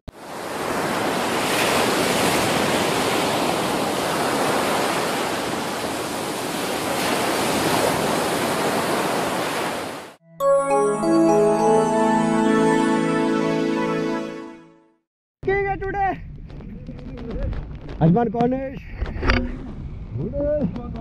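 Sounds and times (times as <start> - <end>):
ocean waves breaking: 0.2 - 10.2
music: 10.2 - 15.0.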